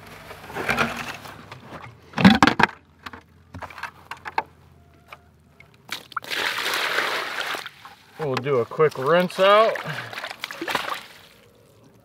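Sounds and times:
plastic bucket clattering: 0:00.4 - 0:04.4
bucket knocks: 0:02.2 - 0:02.8.

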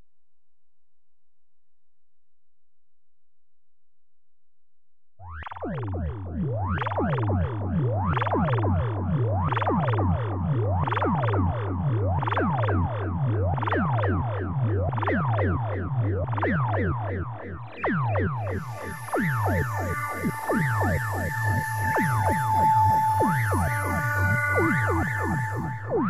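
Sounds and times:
synthesizer pulsing drone: 0:08.8 - 0:26.0
synthesizer sweeping tones: 0:17.4 - 0:26.0.

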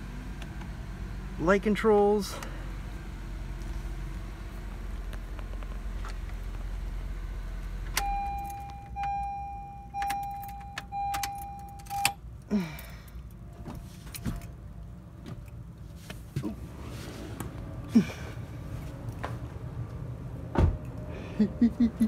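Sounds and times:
car warning chime beeps: 0:08.0 - 0:12.2.

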